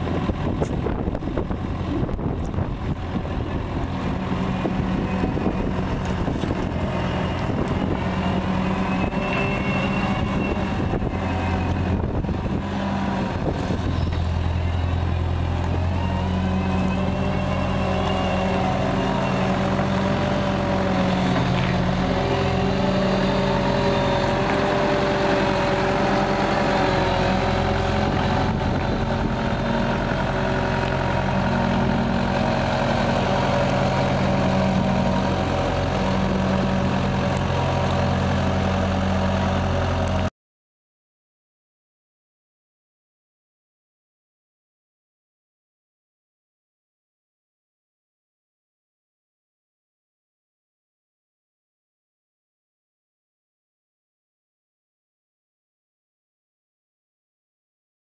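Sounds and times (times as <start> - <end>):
excavator diesel engine running: 0.0 - 40.3.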